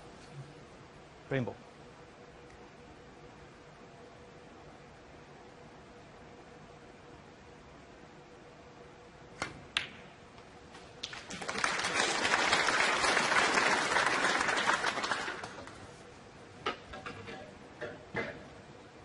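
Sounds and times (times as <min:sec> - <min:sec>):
audience applauding: 0:11.0 - 0:15.9.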